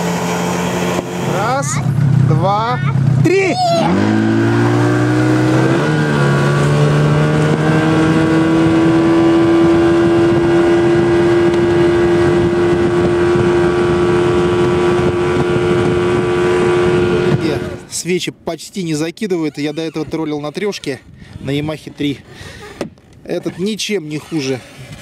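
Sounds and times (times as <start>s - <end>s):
outboard motor running: 0.0s - 17.9s
boat wake rushing: 0.0s - 18.0s.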